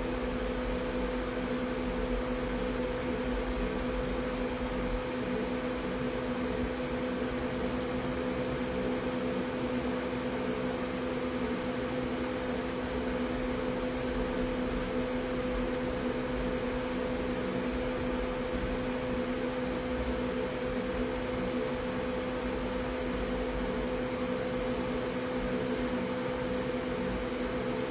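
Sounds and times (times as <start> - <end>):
low electrical hum: 0.0 - 27.9.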